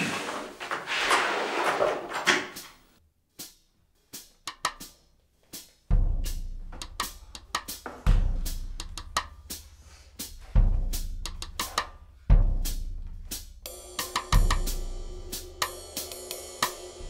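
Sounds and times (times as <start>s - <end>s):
rustling noise: 0.0s - 3.0s
drum kit beat: 3.3s - 17.0s.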